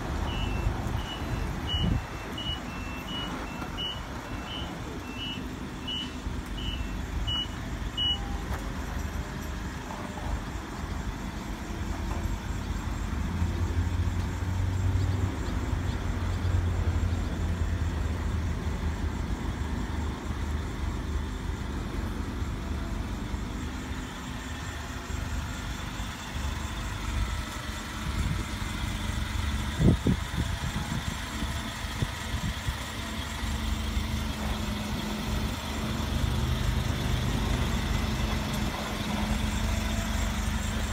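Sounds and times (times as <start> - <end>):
forklift engine running: 0.0 - 40.9
reversing beeper: 0.2 - 9.3.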